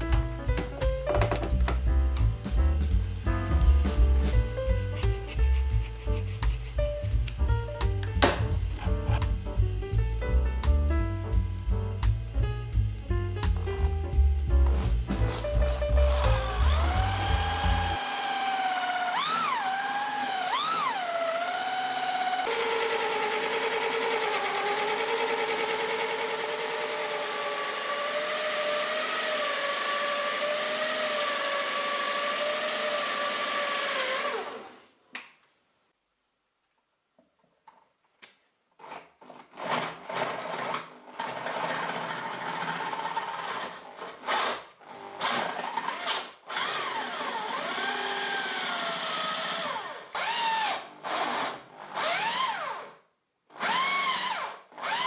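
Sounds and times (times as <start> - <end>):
power drill boring into wood: 15.2 - 34.8, 39.6 - 55.0.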